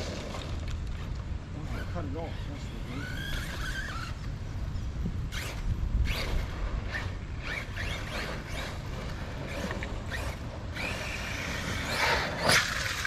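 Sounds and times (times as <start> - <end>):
electric rc car motor whining: 1.7 - 4.3, 5.3 - 13.0.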